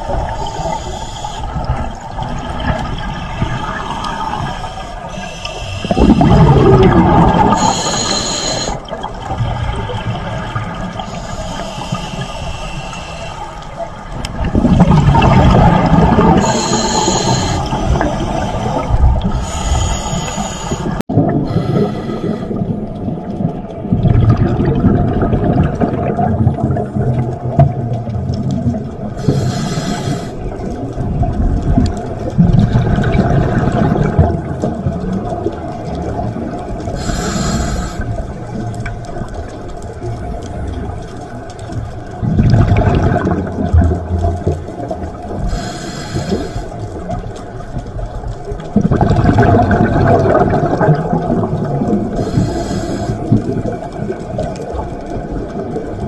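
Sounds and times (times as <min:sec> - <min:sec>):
exhaled bubbles rumbling underwater: 0:00.0 - 0:56.0
regulator hissing inhalations: 0:00.3 - 0:01.6, 0:04.1 - 0:06.4, 0:07.5 - 0:08.8, 0:11.0 - 0:13.8, 0:16.4 - 0:22.6, 0:29.2 - 0:30.4, 0:37.0 - 0:38.1, 0:45.4 - 0:46.8, 0:52.2 - 0:53.2.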